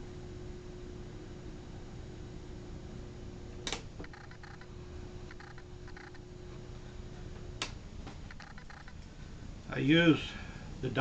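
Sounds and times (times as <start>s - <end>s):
light ticks and squeaks: 8.3s - 9.0s.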